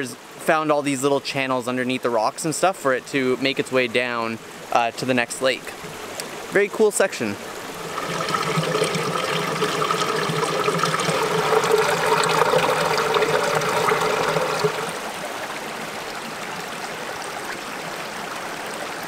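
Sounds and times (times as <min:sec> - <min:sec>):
water trickling under rocks: 0:01.0 - 0:15.2.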